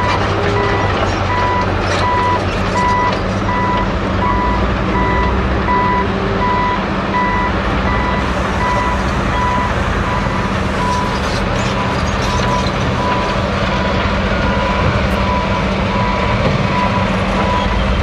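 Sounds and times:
backup alarm beeping: 0:00.0 - 0:11.2
diesel engine running: 0:00.0 - 0:18.0.

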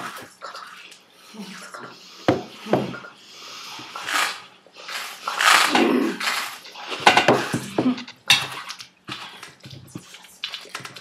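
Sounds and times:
cutlery and dishes clattering: 0:05.4 - 0:10.0.

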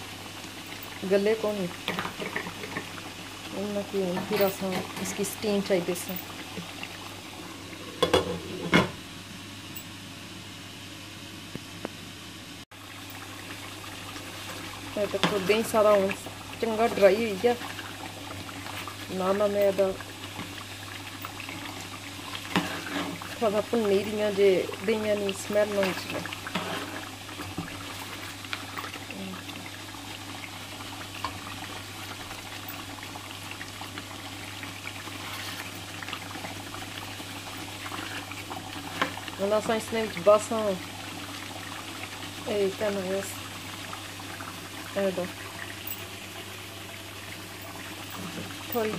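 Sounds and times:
gravy bubbling in a pot: 0:00.0 - 0:09.8, 0:12.7 - 0:48.9
low hum and hiss: 0:00.0 - 0:48.9.

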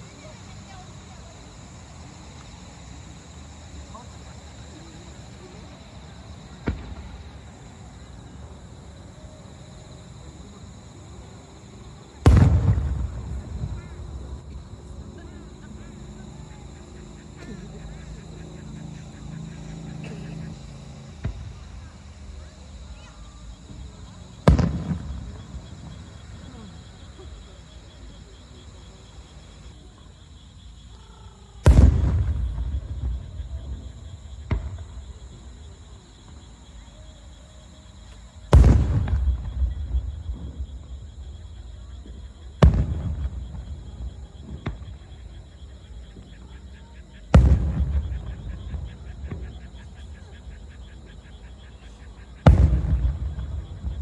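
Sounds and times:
loud rumbling firework boom: 0:12.2 - 0:14.6, 0:24.4 - 0:26.0, 0:31.6 - 0:33.8, 0:38.5 - 0:40.8, 0:42.6 - 0:45.0, 0:47.3 - 0:49.5, 0:52.4 - 0:54.0.

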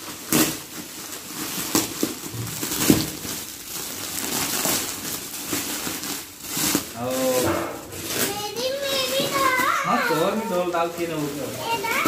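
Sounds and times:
plastic gift wrap crinkling: 0:00.0 - 0:12.0.

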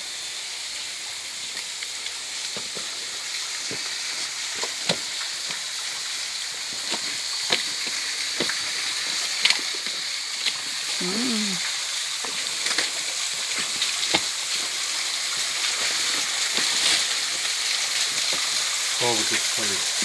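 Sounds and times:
forest stream rushing: 0:00.0 - 0:20.0
footsteps on leaves and twigs: 0:06.5 - 0:10.7.

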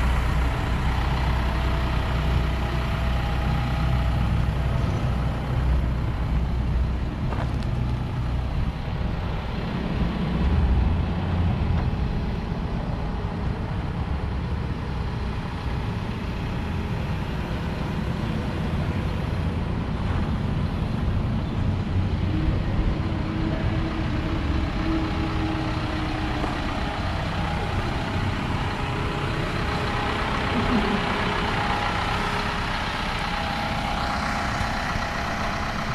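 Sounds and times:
truck engine idling: 0:00.0 - 0:35.9.

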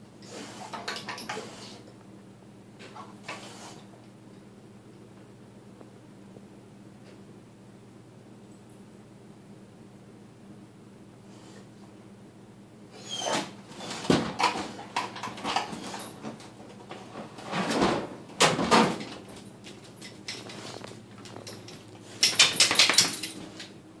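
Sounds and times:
paws clicking on tile: 0:19.3 - 0:23.7.

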